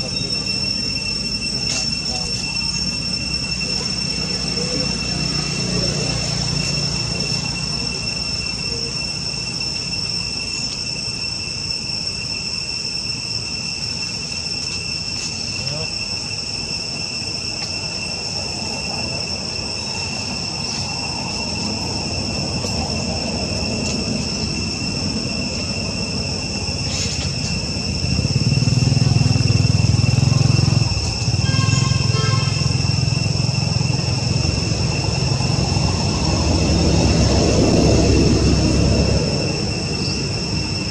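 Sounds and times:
insects droning: 0:00.0 - 0:40.9.

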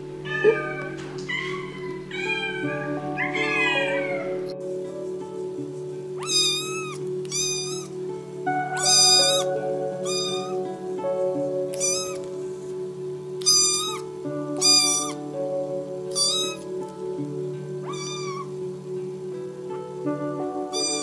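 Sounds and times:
background music with held notes: 0:00.0 - 0:21.0
kitten mewing: 0:00.3 - 0:04.3, 0:06.2 - 0:07.9, 0:08.8 - 0:10.6, 0:11.7 - 0:12.3, 0:13.4 - 0:14.0, 0:14.6 - 0:15.2, 0:16.1 - 0:16.6, 0:17.8 - 0:18.5, 0:20.7 - 0:21.0.

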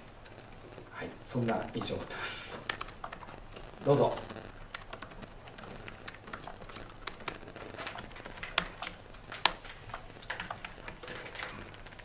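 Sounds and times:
laptop keyboard typing: 0:00.0 - 0:12.0.

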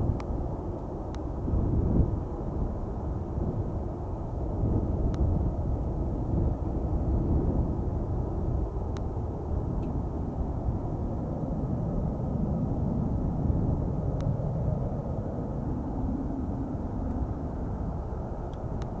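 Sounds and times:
distant airliner rumble: 0:00.0 - 0:19.0.

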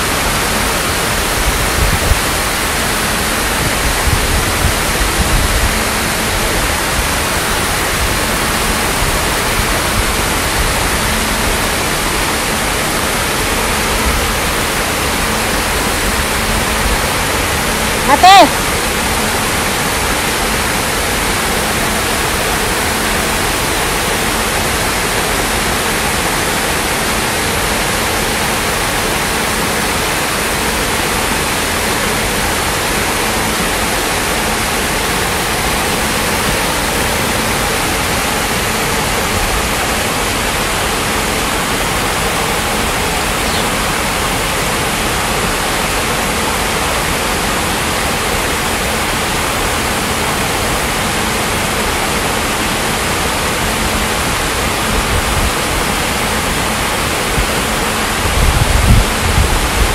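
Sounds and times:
water rushing over rocks: 0:00.0 - 0:59.9.

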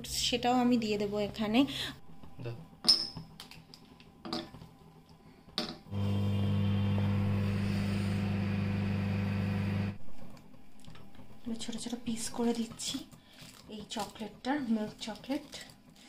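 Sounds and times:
microwave oven humming: 0:05.9 - 0:10.0.

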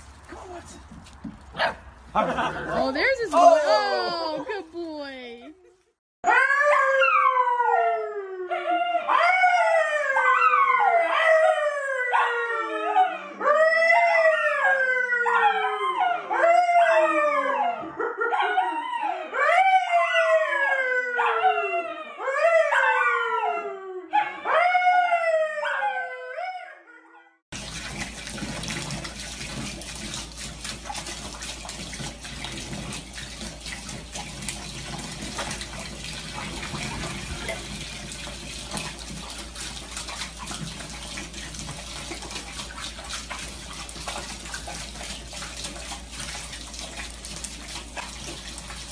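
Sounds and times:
man howling: 0:02.3 - 0:04.6
dog howling: 0:06.2 - 0:27.3
tap water running into bathtub: 0:27.5 - 0:48.9.

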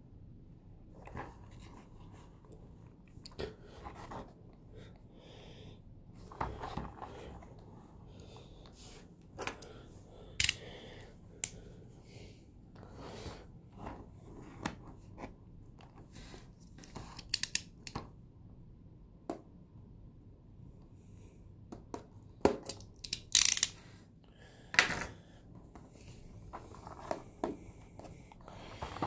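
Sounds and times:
utility knife slitting tape: 0:23.0 - 0:23.8.

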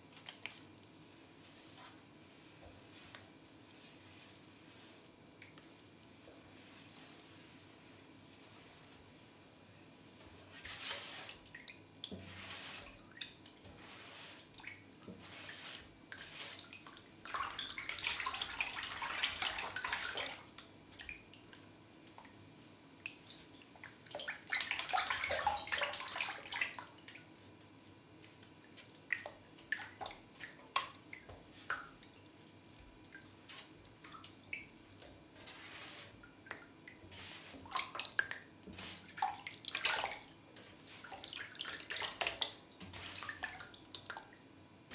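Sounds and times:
hands splashing water in metal tray: 0:10.5 - 0:21.3, 0:33.1 - 0:44.4
water dripping: 0:23.0 - 0:35.1, 0:40.9 - 0:44.5.

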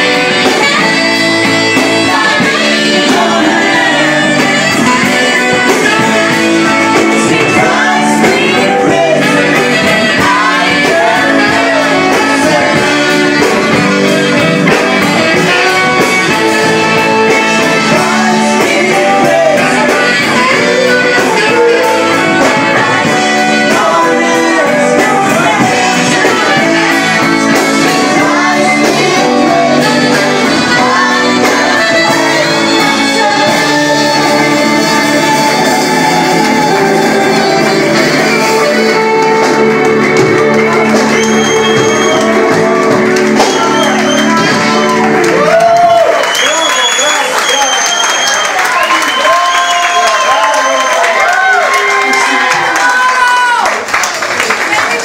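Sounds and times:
electric guitar: 0:00.0 - 0:47.1
live band playing: 0:00.0 - 0:55.0
woman singing into microphone: 0:00.2 - 0:13.5.

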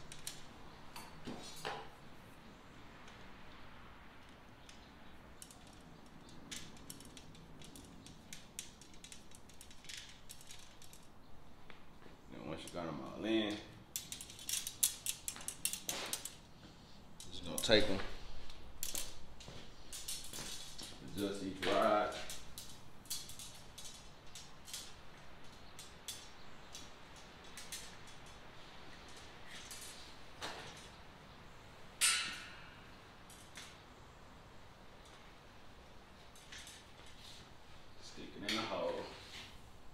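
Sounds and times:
rods clicking and creaking: 0:04.1 - 0:11.8, 0:12.5 - 0:31.0.

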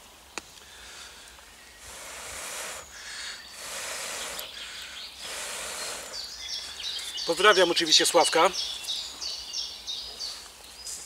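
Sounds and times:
person blowing into stove: 0:01.8 - 0:06.3.

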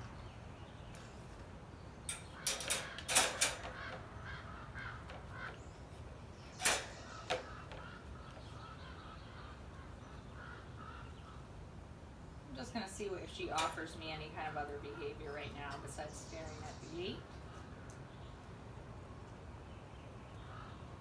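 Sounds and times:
crate door rattling: 0:02.1 - 0:04.1, 0:06.6 - 0:07.9
metal latch clicking: 0:02.1 - 0:04.1, 0:06.6 - 0:07.9.

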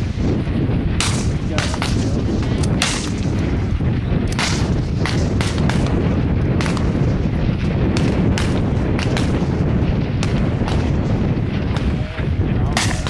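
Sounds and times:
steady low rumble: 0:00.0 - 0:13.0
rifle shots: 0:00.9 - 0:03.5, 0:04.3 - 0:12.0, 0:12.7 - 0:13.0.

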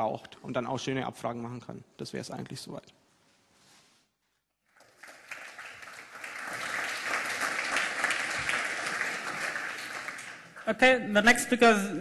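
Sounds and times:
audience applauding: 0:04.7 - 0:10.7.

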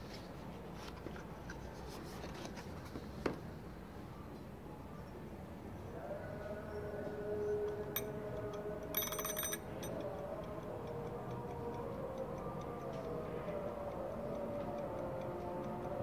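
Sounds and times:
clockwork ticking: 0:07.6 - 0:16.0
ratchet clicks: 0:08.4 - 0:10.1.

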